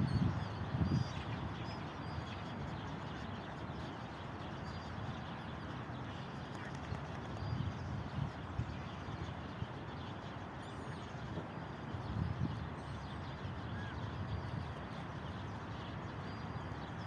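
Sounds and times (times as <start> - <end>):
outdoor background rush: 0.0 - 17.0
faint high bird chirps: 12.1 - 14.6.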